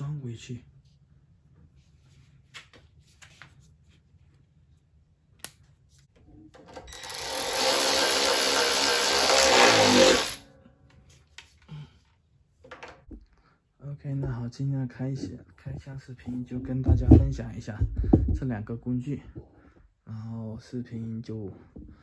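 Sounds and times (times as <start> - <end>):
cordless ratchet motor spinning: 6.9 - 10.4.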